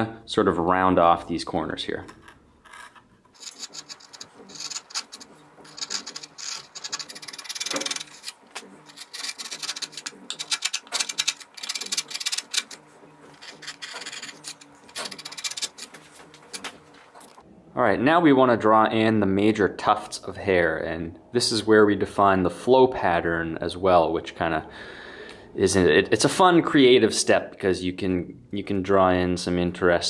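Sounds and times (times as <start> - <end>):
carving gouge scraping wood: 2.7 - 17.2.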